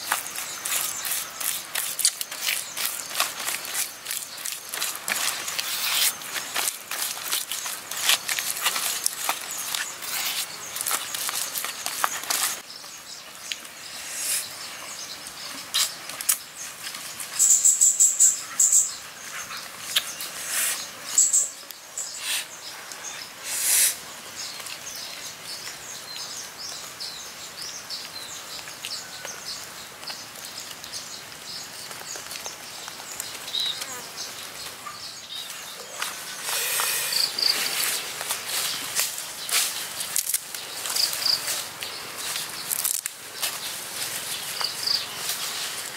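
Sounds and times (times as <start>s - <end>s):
hands rustling leaves and fish: 0.0s - 17.5s, 28.1s - 45.9s
insects chirping: 0.0s - 25.2s, 25.9s - 45.9s
birds chirping: 0.0s - 45.9s.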